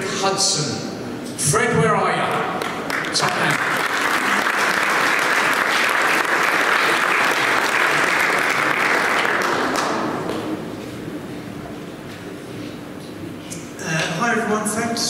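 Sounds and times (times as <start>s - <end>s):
audience applauding: 2.6s - 10.5s.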